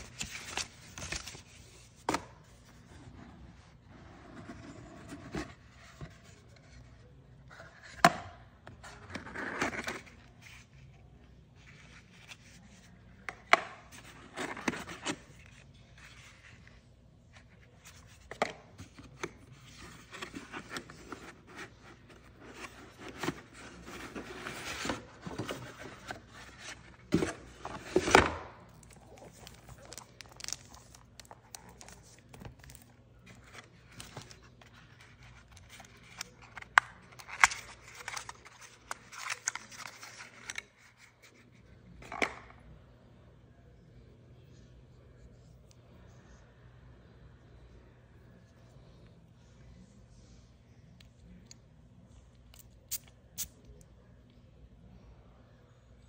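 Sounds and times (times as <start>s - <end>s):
cardboard and paper rustling: 0.0s - 8.1s, 8.7s - 42.3s.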